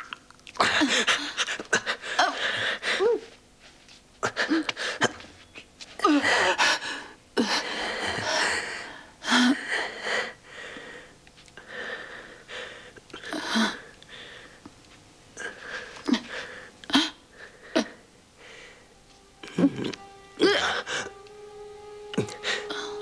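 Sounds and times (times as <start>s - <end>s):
woman whimpering cries: 0.6s - 3.3s, 6.0s - 10.0s, 19.4s - 21.2s, 22.1s - 23.0s
woman gasping and sobbing: 0.6s - 3.4s, 6.0s - 14.6s, 15.4s - 21.2s, 22.1s - 23.0s.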